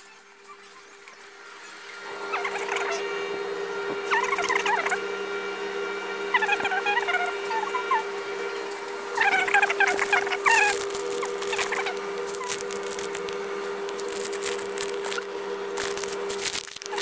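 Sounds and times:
steady electrical hum: 0:00.0 - 0:17.0
short squeaky chirps: 0:09.2 - 0:13.1.

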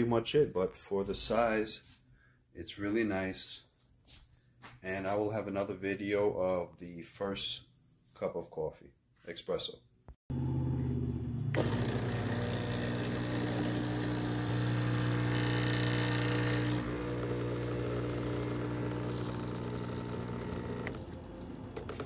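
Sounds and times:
espresso machine pump buzzing: 0:11.5 - 0:22.0.

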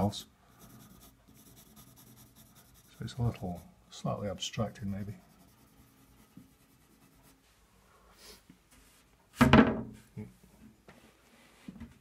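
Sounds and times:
pencil scratching on paper: 0:00.0 - 0:03.8, 0:04.8 - 0:07.4.

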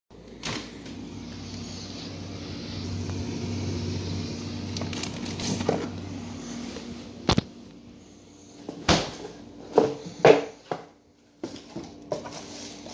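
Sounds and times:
freezer humming: 0:00.1 - 0:12.9
freezer door opening: 0:04.7 - 0:06.0.

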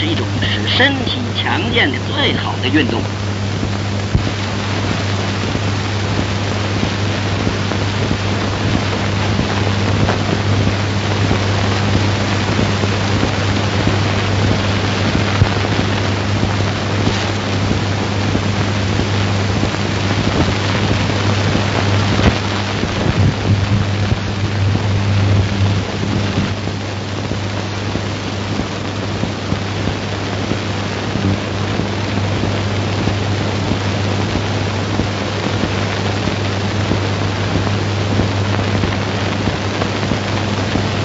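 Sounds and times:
film soundtrack hiss and hum: 0:00.0 - 0:41.0.

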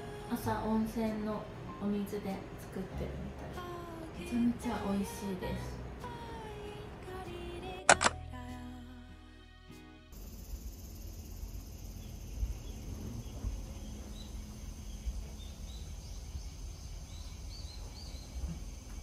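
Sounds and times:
high insect drone: 0:10.2 - 0:19.0
small birds chirping: 0:10.2 - 0:19.0.

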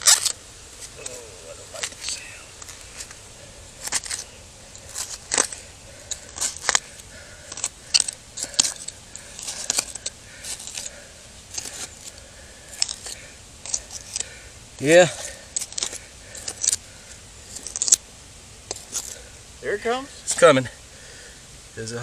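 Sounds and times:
hand tool scraping dirt and gravel: 0:00.0 - 0:18.0, 0:18.7 - 0:20.6.

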